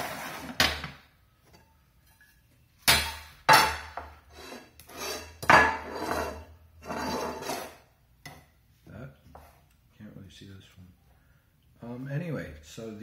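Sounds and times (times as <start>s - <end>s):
pots and lids clanking: 5.0s - 8.4s.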